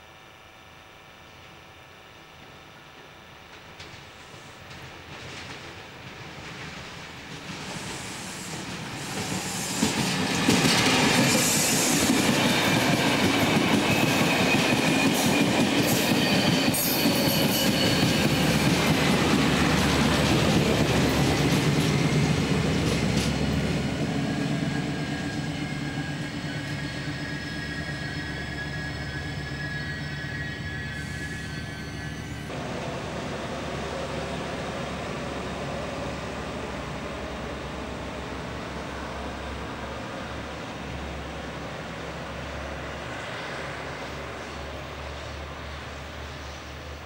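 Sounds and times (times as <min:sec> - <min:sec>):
train passing: 0:03.0 - 0:47.0
high wheel squeal: 0:07.9 - 0:22.2, 0:23.8 - 0:32.5.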